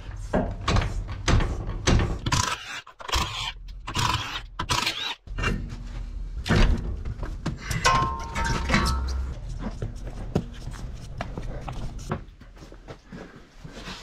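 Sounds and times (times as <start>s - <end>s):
wheel clunking and scraping: 5.3s - 14.0s.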